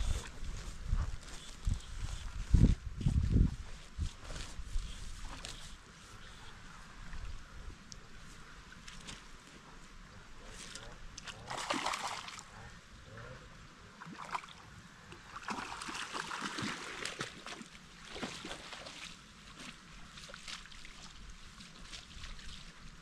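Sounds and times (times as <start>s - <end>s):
water splashing: 11.2s - 12.5s, 14.0s - 22.8s.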